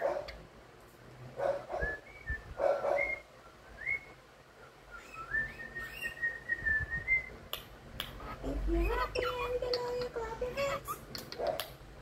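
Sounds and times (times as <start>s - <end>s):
cockatiel whistling: 3.0s - 4.2s, 4.9s - 7.3s.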